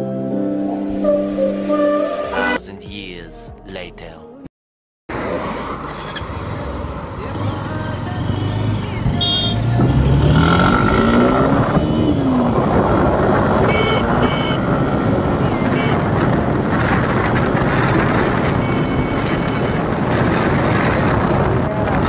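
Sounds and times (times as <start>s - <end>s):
motorcycle engine accelerating: 5.7s - 22.0s
wind on microphone: 9.9s - 22.0s.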